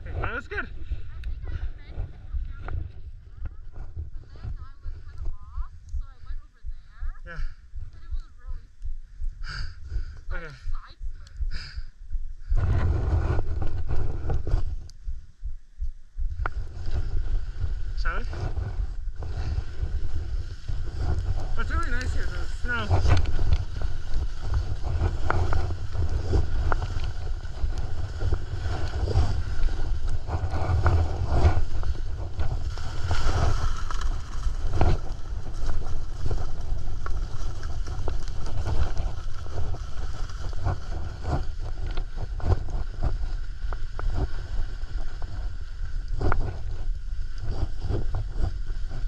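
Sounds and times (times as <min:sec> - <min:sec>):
wind rushing over microphone: 0:00.0 - 0:49.0
skis scraping on snow: 0:16.5 - 0:49.0.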